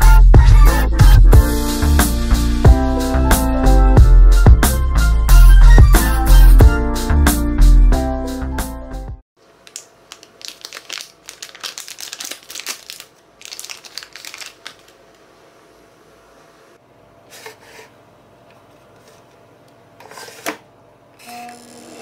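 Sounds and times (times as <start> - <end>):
plastic pouch crinkling: 9.6 - 15.2.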